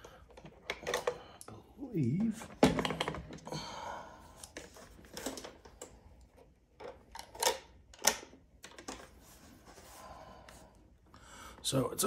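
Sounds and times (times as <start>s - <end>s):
plastic clicks and knocks: 2.1s - 3.5s.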